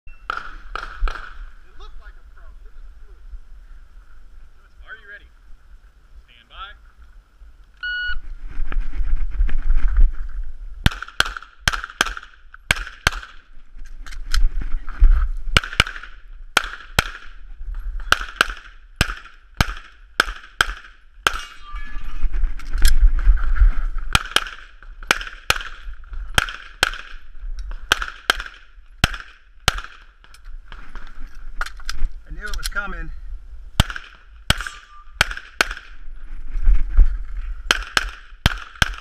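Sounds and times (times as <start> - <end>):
pistol shots: 0.3 - 1.4, 10.8 - 13.4, 18.0 - 21.5, 24.1 - 27.2, 27.9 - 30.1, 33.8 - 36.0, 37.7 - 39.0.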